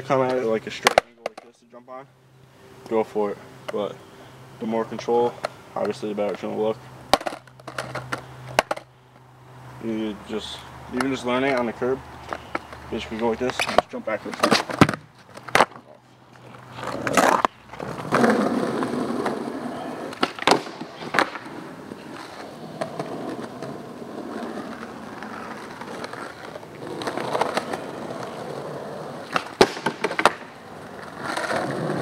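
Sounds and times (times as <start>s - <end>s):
skateboard wheels rolling on asphalt: 4.6s - 32.0s
skateboard clacking down: 7.1s - 8.9s, 12.3s - 15.8s, 16.8s - 32.0s.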